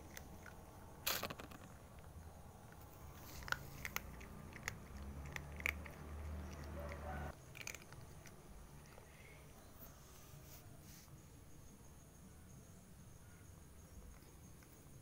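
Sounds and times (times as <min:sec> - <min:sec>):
cat crunching dry kibble: 0:00.0 - 0:02.1, 0:02.7 - 0:09.0.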